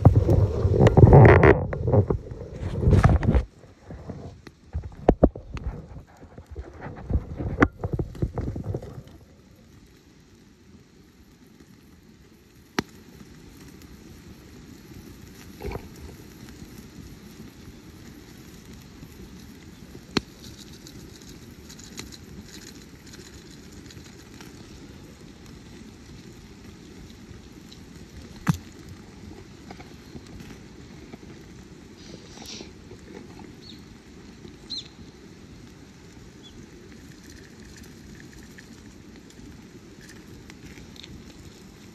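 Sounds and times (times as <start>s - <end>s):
campfire burning: 0.0s - 41.9s
fire popping and crackling: 0.0s - 41.9s.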